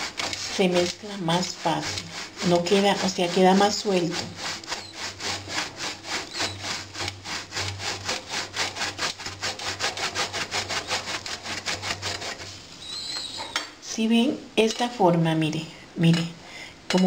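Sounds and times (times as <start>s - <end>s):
cheese grating on metal grater: 0.0s - 12.6s.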